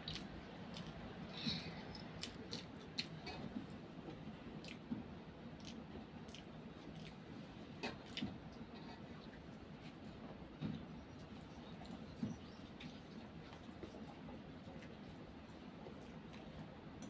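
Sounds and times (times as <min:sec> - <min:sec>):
child chewing noodles: 0:00.0 - 0:04.9, 0:05.6 - 0:10.0.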